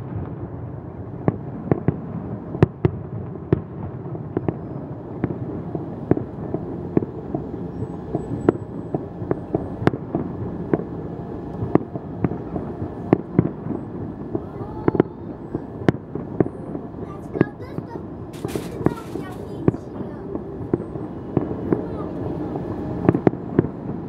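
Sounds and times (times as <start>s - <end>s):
firework shells bursting: 17.3s - 20.0s.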